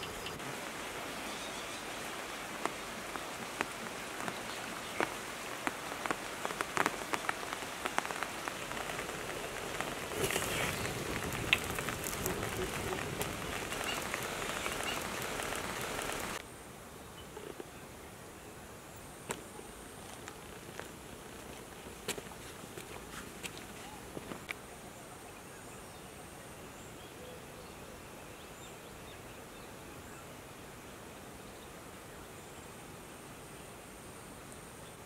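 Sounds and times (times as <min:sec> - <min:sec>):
wood fire crackling: 0:02.6 - 0:16.4
water boiling in a wok: 0:07.9 - 0:16.4.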